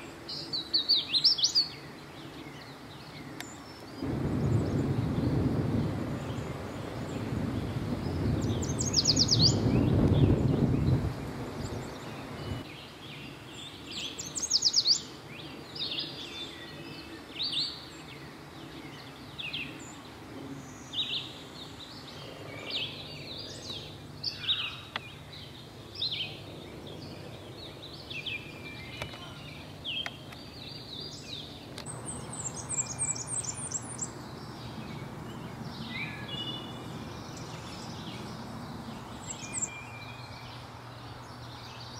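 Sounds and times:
songbirds singing: 0.0 - 41.9
low rumbling noise: 4.0 - 12.6, 25.0 - 41.9.

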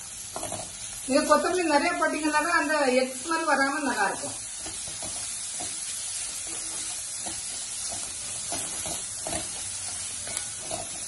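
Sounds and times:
food sizzling in oil: 0.0 - 11.0
wooden spatula scraping pan: 4.6 - 11.0.

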